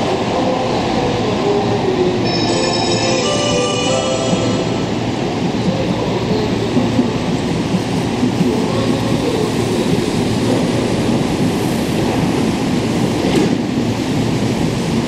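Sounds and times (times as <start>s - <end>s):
station noise: 1.8s - 6.6s.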